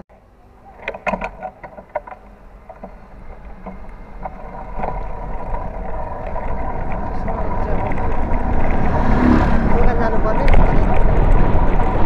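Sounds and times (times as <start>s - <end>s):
wind and tyre noise: 0.1s - 12.0s
bicycle knocks and rattles: 0.8s - 8.7s.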